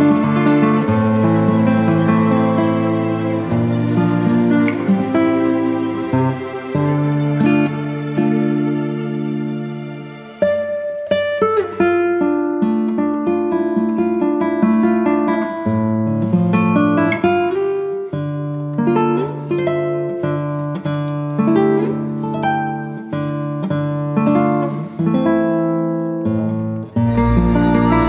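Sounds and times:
plucked guitar playing chords: 0:00.0 - 0:28.0
low bass notes: 0:27.0 - 0:28.0.

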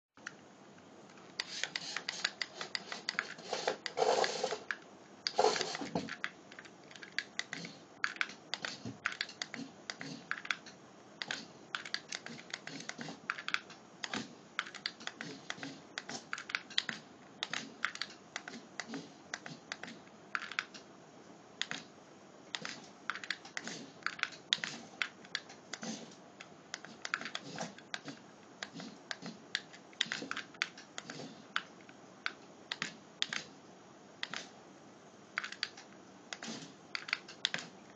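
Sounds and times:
small plastic clicks and ticks: 0:04.6 - 0:20.9, 0:22.5 - 0:25.8, 0:26.4 - 0:33.6, 0:34.2 - 0:34.5, 0:35.4 - 0:37.9.

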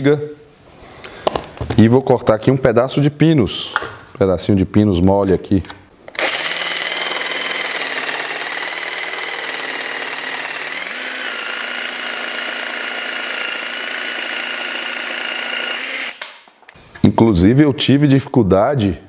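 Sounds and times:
jigsaw cutting wood: 0:06.1 - 0:16.3.

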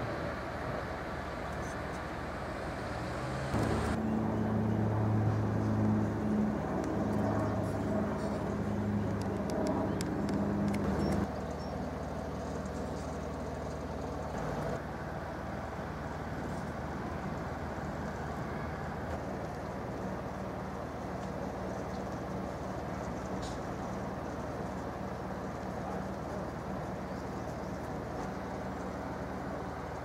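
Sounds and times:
low engine hum: 0:00.0 - 0:30.0
light clicks: 0:09.0 - 0:11.3.

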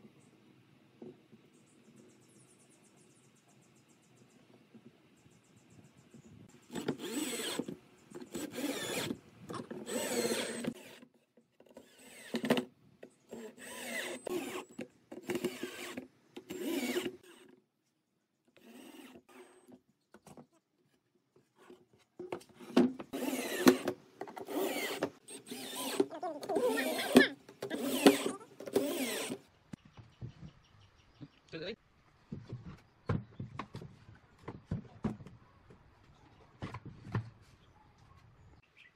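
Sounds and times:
drill bit boring into wood: 0:06.7 - 0:07.7, 0:08.3 - 0:11.0, 0:11.8 - 0:12.6, 0:13.3 - 0:17.4, 0:23.1 - 0:23.9, 0:24.5 - 0:29.4
cordless drill driving screws: 0:06.7 - 0:11.1, 0:11.7 - 0:12.7, 0:13.3 - 0:17.6, 0:18.6 - 0:19.7, 0:22.6 - 0:29.4.

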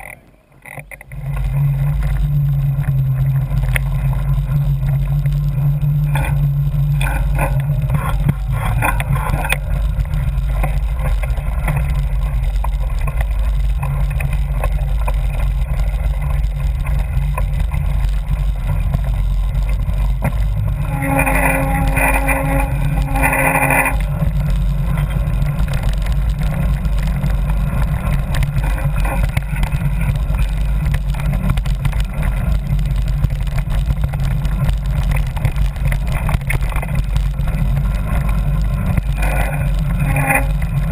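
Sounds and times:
wind and trail vibration rumble: 0:00.0 - 0:40.9
short pitched tone: 0:20.8 - 0:25.1.

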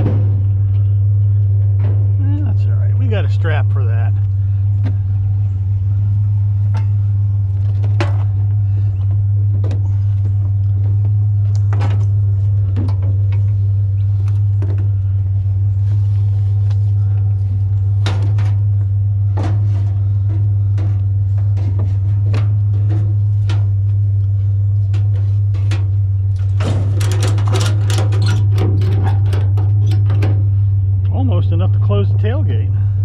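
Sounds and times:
rattling: 0:00.0 - 0:31.0
truck engine drone: 0:00.0 - 0:33.0
clicks and knocks: 0:24.9 - 0:30.4.

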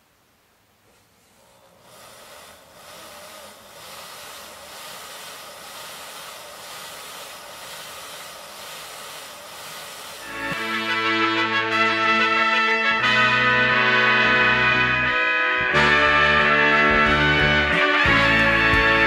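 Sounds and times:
model train motor whirring: 0:01.4 - 0:10.9.

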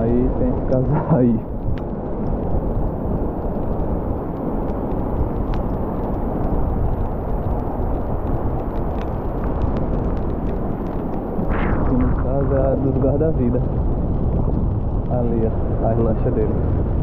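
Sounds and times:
wind rumbling on microphone: 0:00.0 - 0:17.0
faint ticks: 0:01.5 - 0:11.5.

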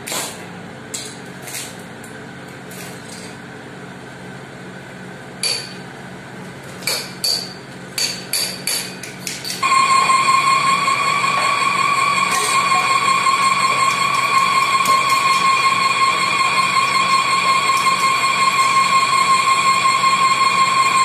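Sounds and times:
lathe humming: 0:09.6 - 0:21.0.

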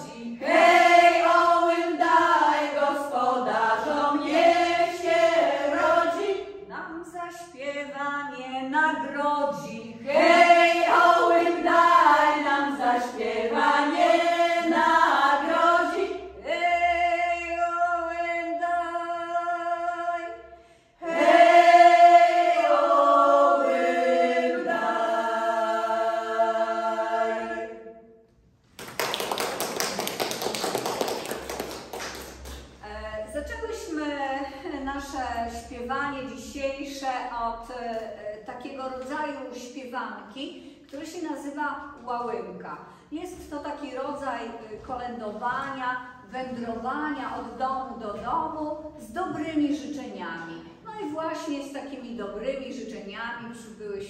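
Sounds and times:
women singing a cappella: 0:00.0 - 0:28.2.

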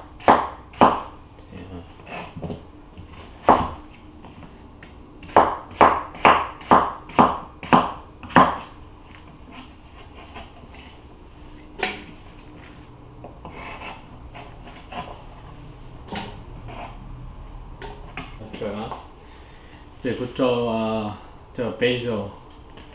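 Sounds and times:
knife chopping on plastic board: 0:00.2 - 0:01.1, 0:03.4 - 0:03.8, 0:05.2 - 0:08.7.

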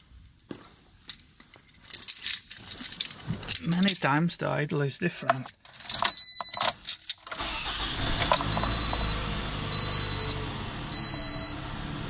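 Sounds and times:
dashboard warning chime beeping: 0:06.1 - 0:06.7, 0:08.4 - 0:11.9
car engine idling: 0:07.4 - 0:12.0.

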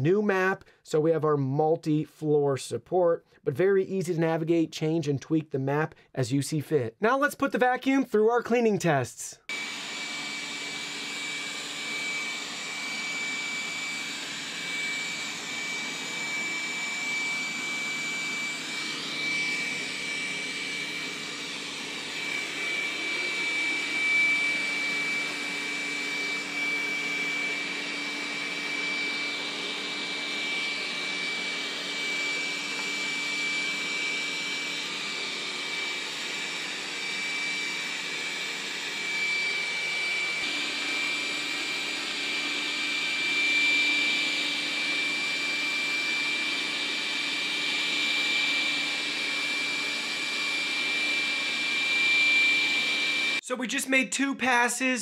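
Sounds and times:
robot vacuum running: 0:09.5 - 0:53.4.

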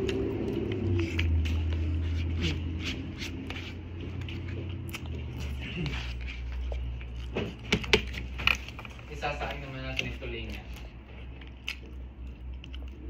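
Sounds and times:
chewing and biting: 0:00.0 - 0:13.0
steady low hum: 0:00.0 - 0:13.0.

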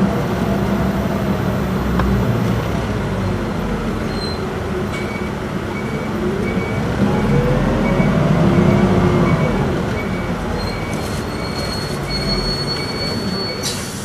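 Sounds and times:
bus diesel engine running low: 0:00.0 - 0:14.0
high-pitched brake squeal: 0:04.0 - 0:08.2, 0:09.4 - 0:14.0.

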